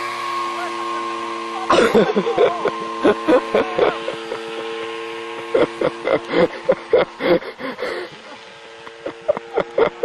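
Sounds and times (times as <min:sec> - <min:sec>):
model plane engine overhead: 0:00.0 - 0:10.0.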